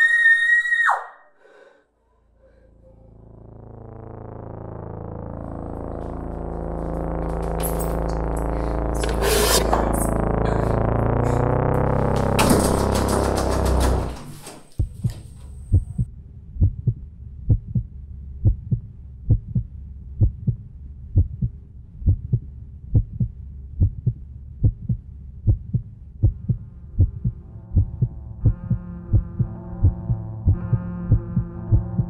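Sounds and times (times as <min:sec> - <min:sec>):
steady low hum: 0:02.1 - 0:32.0
synth chord: 0:02.4 - 0:14.6, 0:26.6 - 0:32.0
heartbeat thumps: 0:05.9 - 0:20.6, 0:21.2 - 0:32.0.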